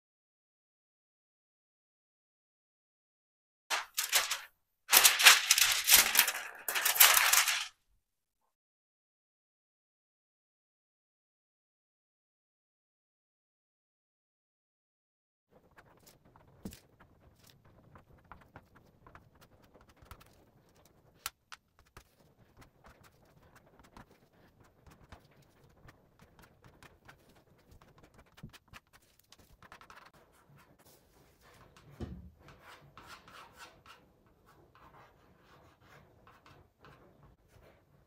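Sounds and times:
rubbing and scratching on metal plate: 0:03.7 - 0:07.7, 0:21.8 - 0:38.0.

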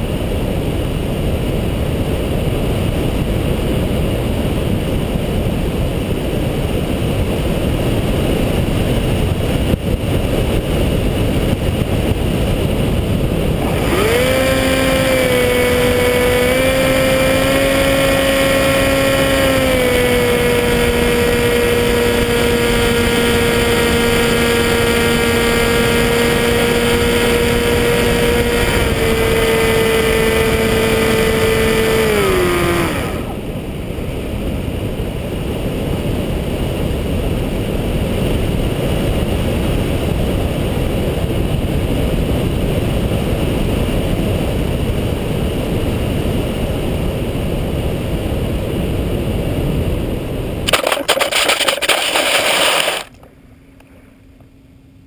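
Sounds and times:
electric motor and propeller whining: 0:00.0 - 0:37.5, 0:50.7 - 0:53.9
wind rushing over camera: 0:00.0 - 0:53.2
scraping and clattering on pebbles: 0:50.7 - 0:53.2.

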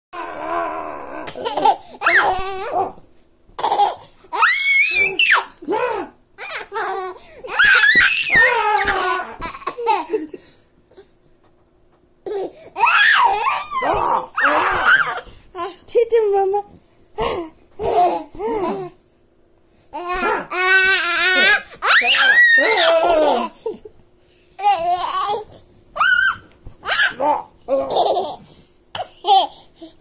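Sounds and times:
baby laughing: 0:01.3 - 0:03.0, 0:03.6 - 0:05.4, 0:06.4 - 0:10.4, 0:12.3 - 0:15.3, 0:26.0 - 0:28.4.

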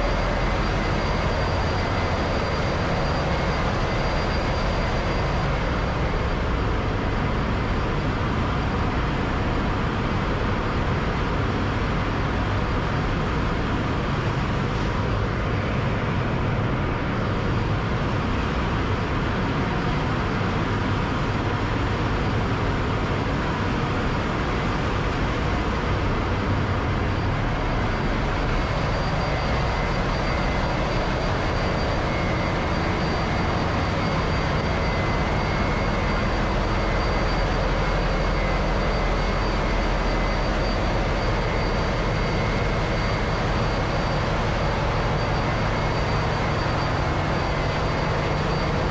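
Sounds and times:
engine room machinery drone: 0:00.0 - 0:48.9
high steady whines: 0:00.0 - 0:48.9.

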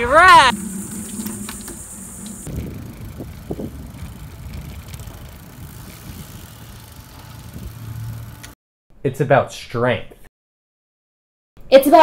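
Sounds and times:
wind and road rumble: 0:00.0 - 0:08.6.

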